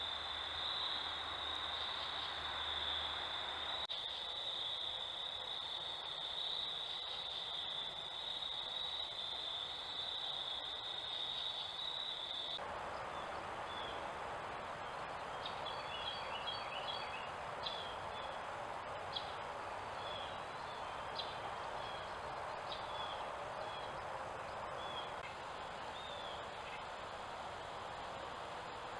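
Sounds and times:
insect chorus trilling: 0:00.0 - 0:12.6.

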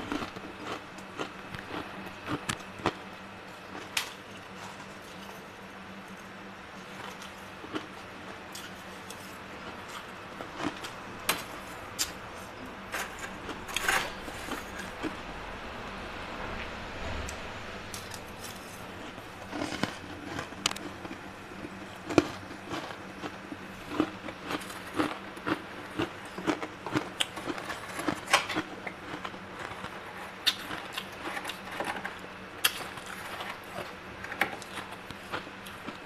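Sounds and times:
metal spoon scraping frost: 0:12.4 - 0:15.0.

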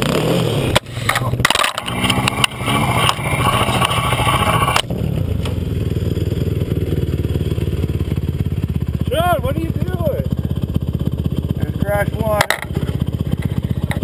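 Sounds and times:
quad engine running: 0:00.0 - 0:14.0
clattering knocks and scraping: 0:01.0 - 0:05.6, 0:12.4 - 0:14.0.

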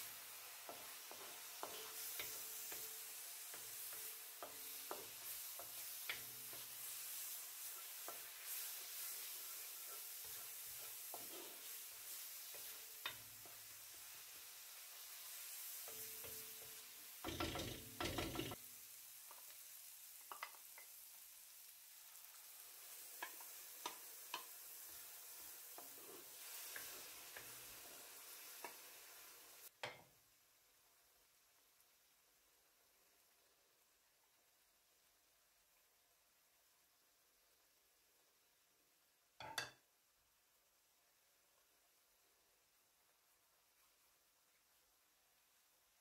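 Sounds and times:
vegetables sizzling in a pan: 0:00.0 - 0:46.0
wooden spoon scraping a pan: 0:00.4 - 0:18.6, 0:23.2 - 0:28.8.

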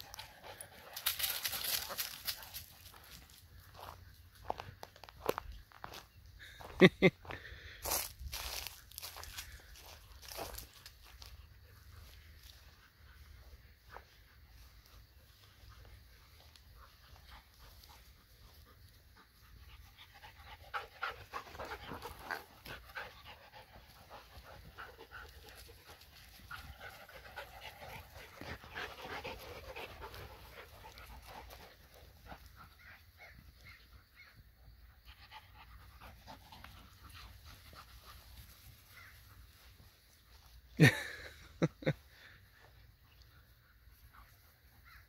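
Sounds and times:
dogs making play sounds: 0:00.0 - 0:04.8, 0:09.4 - 0:34.2, 0:34.8 - 0:40.8
dogs panting: 0:00.0 - 0:06.0, 0:09.2 - 0:34.0, 0:34.8 - 0:40.7.

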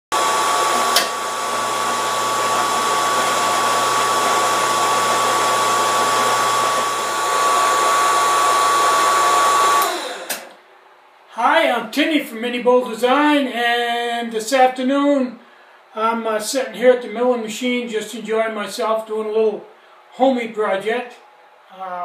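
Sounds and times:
mill-drill whining: 0:00.1 - 0:10.6.

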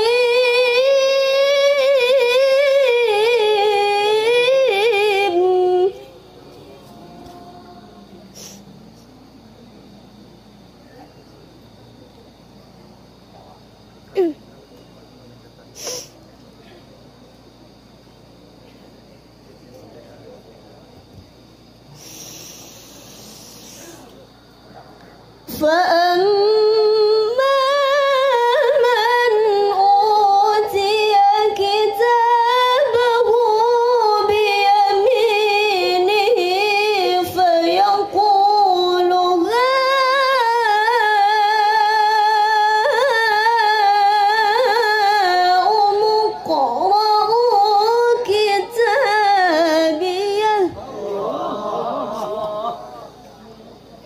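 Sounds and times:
woman chanting through a microphone: 0:00.0 - 0:10.7, 0:25.4 - 0:53.0.

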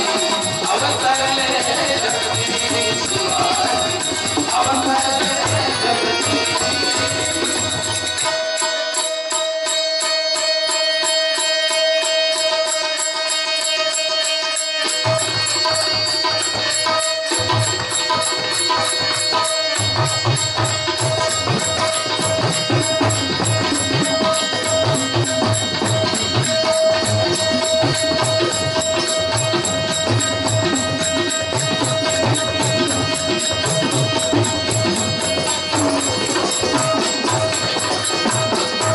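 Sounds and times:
harmonium holding a note: 0:00.0 - 0:09.0
jingling hand percussion: 0:00.0 - 0:38.9
tabla strokes: 0:00.0 - 0:38.9.

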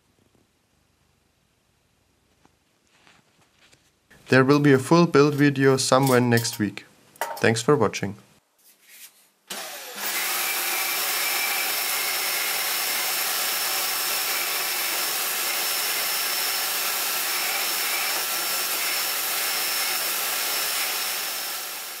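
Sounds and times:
vacuum cleaner air rushing: 0:09.5 - 0:22.0.

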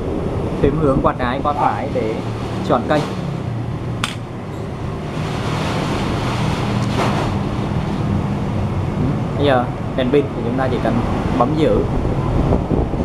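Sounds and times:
low hum: 0:04.1 - 0:08.4.

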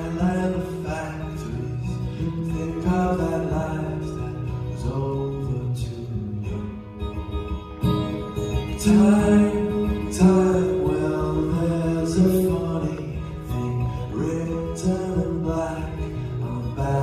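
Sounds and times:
man singing: 0:00.0 - 0:06.8, 0:08.6 - 0:17.0
acoustic guitar strumming: 0:00.0 - 0:17.0.

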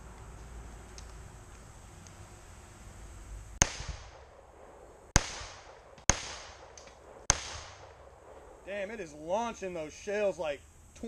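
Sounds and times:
pistol shots with echo: 0:03.6 - 0:04.4, 0:05.2 - 0:08.4.

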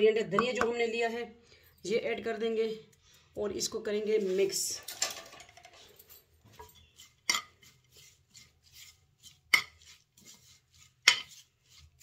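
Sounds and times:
spoon scraping: 0:06.5 - 0:12.0.

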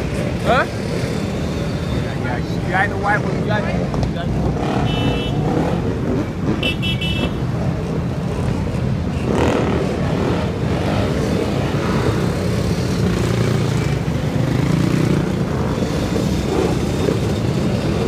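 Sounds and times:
car traffic: 0:00.0 - 0:18.0
motorbike engines revving: 0:00.0 - 0:18.0.

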